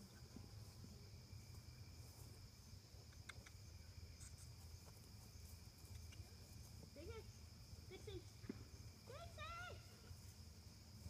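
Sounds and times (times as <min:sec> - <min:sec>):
crickets trilling: 0:00.0 - 0:11.0
faint ticks: 0:03.0 - 0:03.6.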